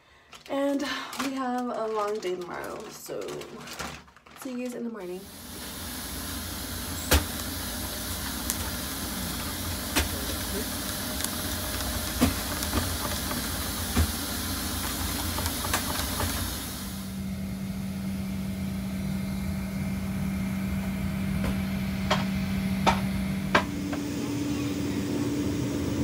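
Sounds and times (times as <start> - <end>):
machinery hiss: 5.2 - 17.2
low hum: 5.3 - 26.0.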